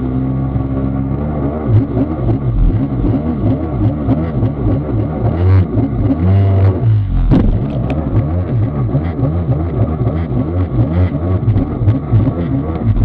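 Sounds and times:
jet ski engine running: 0:00.0 - 0:13.0
sharp knock: 0:07.3 - 0:08.0.

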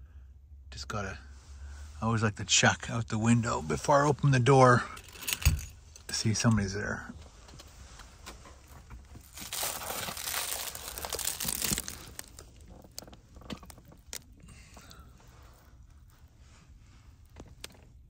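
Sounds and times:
clothing and gear rustling: 0:07.2 - 0:17.6.

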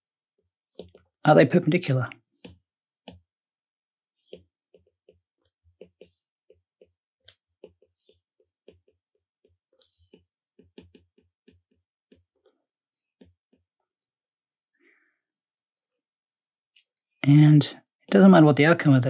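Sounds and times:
stylus tapping glass screen: 0:04.2 - 0:13.7.

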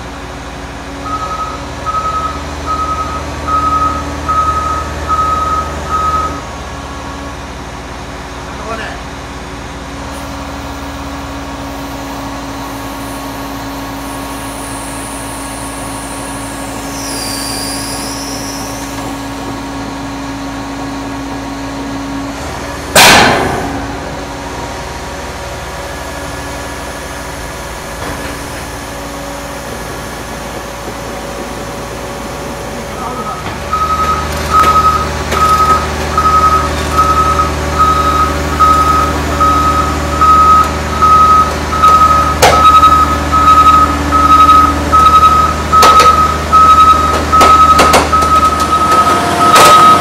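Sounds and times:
truck engine idling: 0:00.0 - 0:50.0
sudden loud burst: 0:22.9 - 0:24.5.

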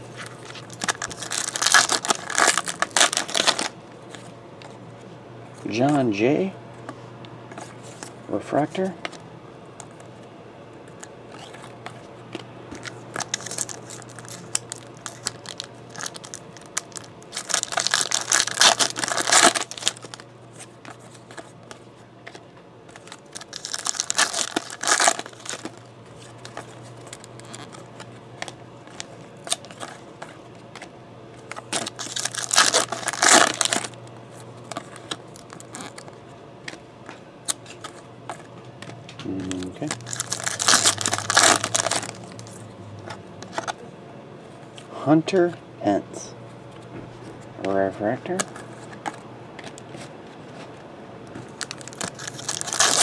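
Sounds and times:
card handling: 0:00.1 - 0:04.8, 0:09.8 - 0:43.9, 0:46.7 - 0:53.0
foil wrappers tearing and crinkling: 0:00.2 - 0:03.8, 0:12.8 - 0:20.2, 0:22.9 - 0:27.8, 0:28.4 - 0:30.4, 0:31.5 - 0:36.2, 0:39.3 - 0:42.6, 0:51.5 - 0:53.0.

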